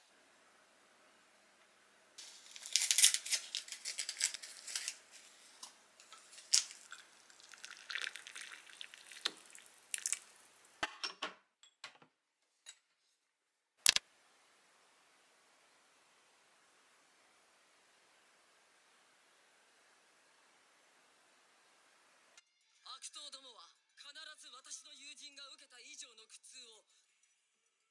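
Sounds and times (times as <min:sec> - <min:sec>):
paper packaging rustling and tearing: 0:02.2 - 0:10.4
water pouring into ceramic mug: 0:06.1 - 0:10.8.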